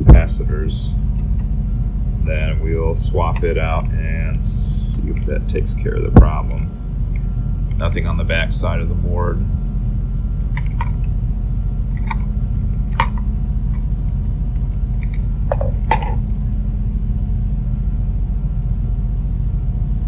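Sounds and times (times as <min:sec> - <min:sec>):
low background hum: 0:00.0 - 0:20.0
plastic parts clicking and knocking: 0:10.5 - 0:11.1, 0:15.0 - 0:16.2.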